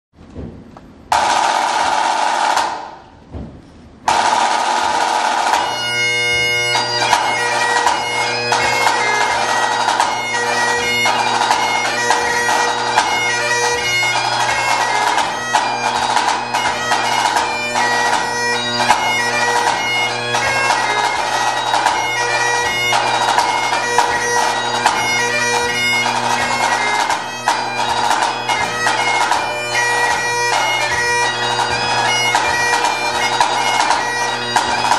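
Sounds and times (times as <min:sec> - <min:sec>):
snare drum rolls and strokes: 0:00.4 - 0:05.8
bagpipe playing: 0:04.1 - 0:34.9.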